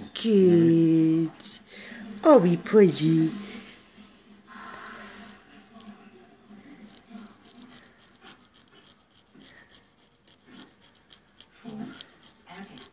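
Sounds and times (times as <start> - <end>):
emery board rasping on claws: 6.8 - 12.9.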